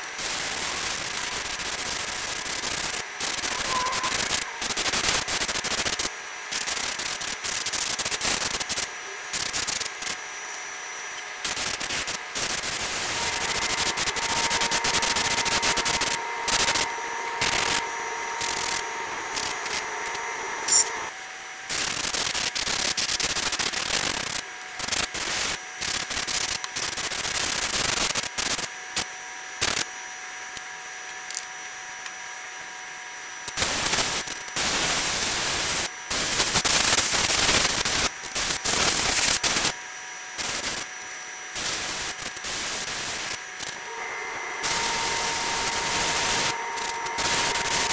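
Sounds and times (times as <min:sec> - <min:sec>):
airbrush spraying in hissing bursts: 0:00.2 - 0:10.2, 0:11.4 - 0:19.9, 0:33.6 - 0:39.7, 0:40.4 - 0:40.9, 0:41.6 - 0:43.8, 0:44.6 - 0:47.9.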